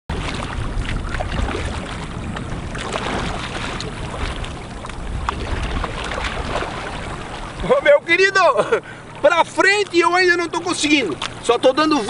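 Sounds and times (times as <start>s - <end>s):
wind rumbling on microphone: 0.1s - 7.8s
small water splashes: 0.1s - 12.0s.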